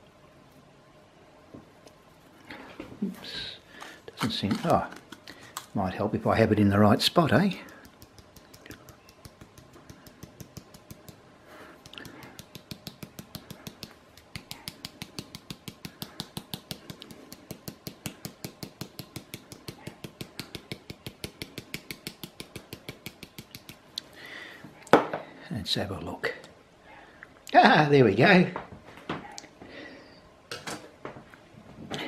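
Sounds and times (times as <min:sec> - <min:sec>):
powder shaker ticking: 0:03.3 - 0:24.2.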